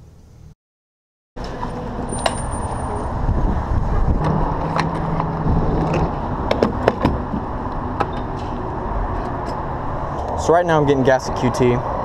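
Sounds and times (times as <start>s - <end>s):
traffic rumble: 1.4s - 12.0s
wind: 1.4s - 12.0s.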